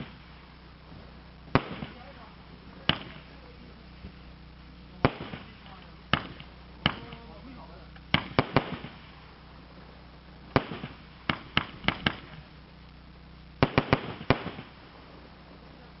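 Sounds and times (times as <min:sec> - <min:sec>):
fireworks cake bangs: 0:01.5 - 0:02.2, 0:02.8 - 0:03.4, 0:05.0 - 0:07.3, 0:08.1 - 0:09.2, 0:10.5 - 0:12.5, 0:13.6 - 0:14.8.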